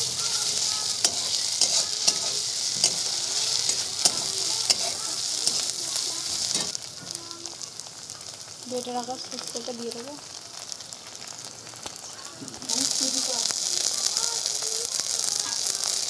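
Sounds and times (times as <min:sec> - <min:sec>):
steel spatula scraping pan: 0:00.0 - 0:06.8
vegetables sizzling in hot oil: 0:00.0 - 0:16.0.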